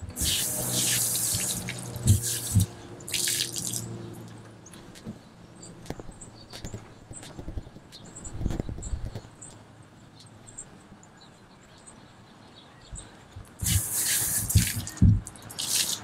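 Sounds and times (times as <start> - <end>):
running water: 0.0 - 4.2, 13.6 - 16.0
water dripping: 0.1 - 4.4, 13.6 - 16.0
low thumps: 1.4 - 2.8, 14.5 - 15.3.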